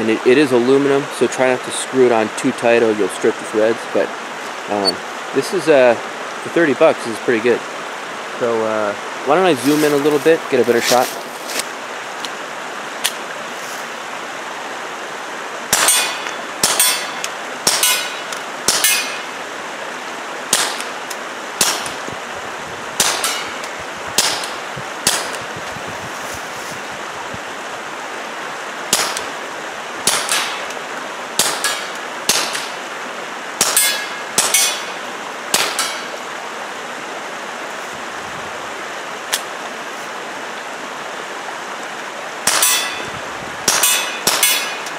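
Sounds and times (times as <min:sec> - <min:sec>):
steady background hiss: 0:00.0 - 0:44.9
suppressed pistol shots: 0:23.0 - 0:23.5, 0:30.0 - 0:30.7.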